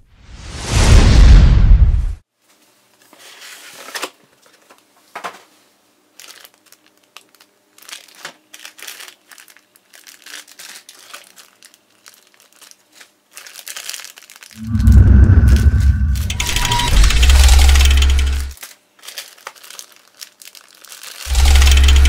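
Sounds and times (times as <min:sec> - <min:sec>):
plastic bags crinkling: 0:06.1 - 0:14.6, 0:18.5 - 0:22.0.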